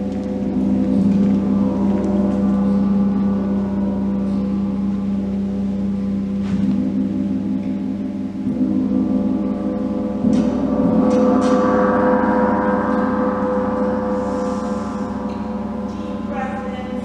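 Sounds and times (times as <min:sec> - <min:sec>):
large gong ringing: 0:00.0 - 0:17.0.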